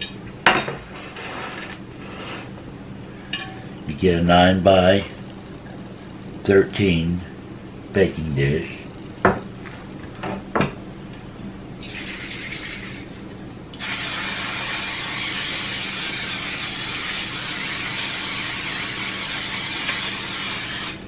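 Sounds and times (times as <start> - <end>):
aerosol spray hissing: 13.8 - 21.0.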